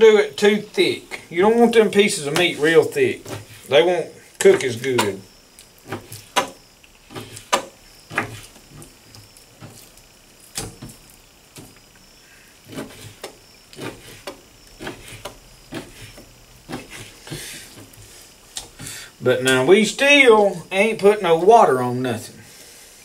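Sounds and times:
knife slicing fish: 12.7s - 17.1s.

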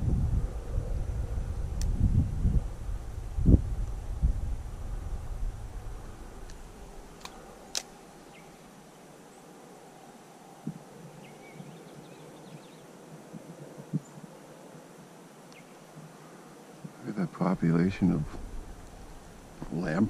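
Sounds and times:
low rumble: 0.0s - 7.2s, 17.6s - 20.0s
sharp clicks: 6.4s - 8.0s.

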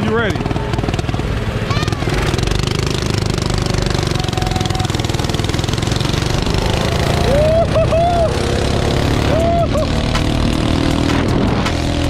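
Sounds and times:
mini bike engines running: 0.0s - 11.5s
wind noise on microphone: 10.5s - 12.0s.

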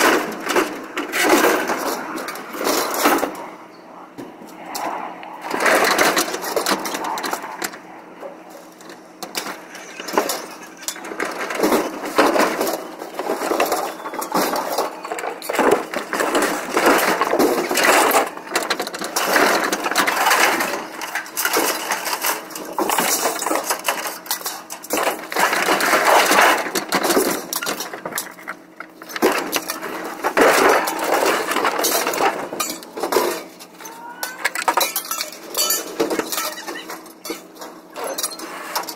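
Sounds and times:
scrap metal clanking: 8.6s - 38.9s.

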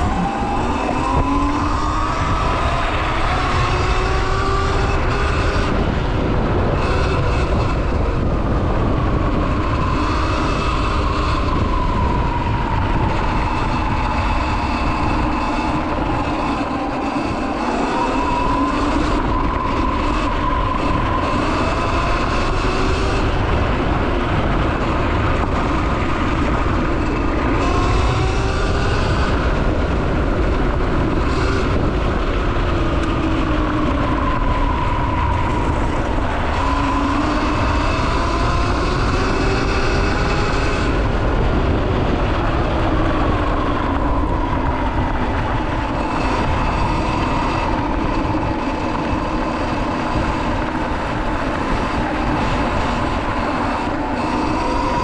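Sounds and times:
electric motorbike motor whining: 0.0s - 55.0s
wind noise on microphone: 0.0s - 55.0s.

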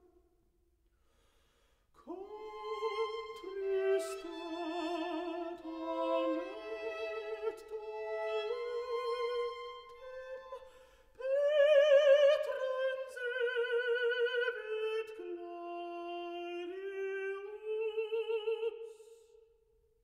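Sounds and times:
slow classical melody: 2.1s - 17.2s.

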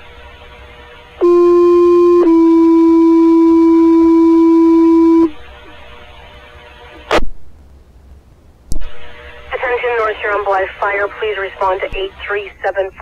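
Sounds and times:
two-tone paging tones: 1.2s - 5.3s
faint radio hiss: 5.3s - 13.0s.

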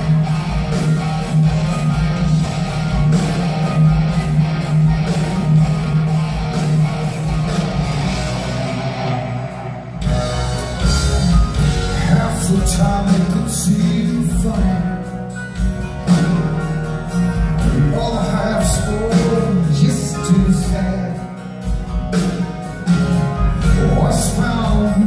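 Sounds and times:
drums: 0.0s - 25.0s
electric guitar: 0.0s - 25.0s
keyboards: 0.0s - 25.0s
man singing: 11.7s - 15.2s, 17.6s - 21.4s, 23.6s - 25.0s.

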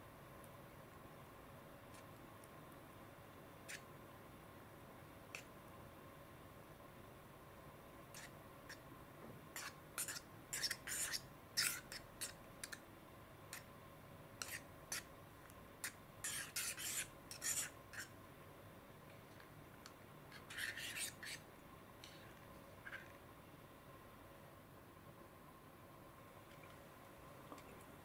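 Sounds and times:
plastic spork scraping bowl: 9.6s - 12.8s, 14.4s - 15.1s, 15.8s - 18.1s.

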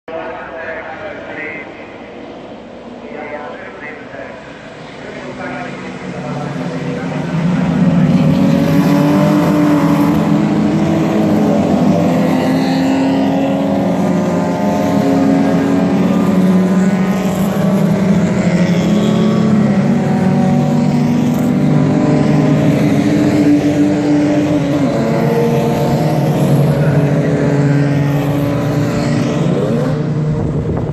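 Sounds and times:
race car engines accelerating: 0.1s - 30.9s.

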